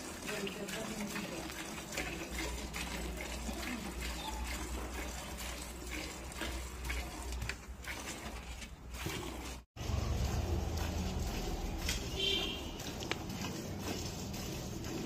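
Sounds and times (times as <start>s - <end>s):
milk squirting into steel bucket: 0.0s - 15.0s.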